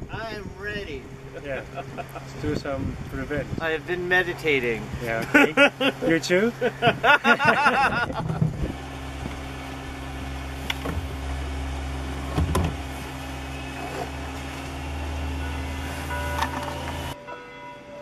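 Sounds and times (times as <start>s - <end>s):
motor running steadily: 0.0s - 17.2s
man laughing: 1.3s - 2.4s, 5.1s - 8.5s.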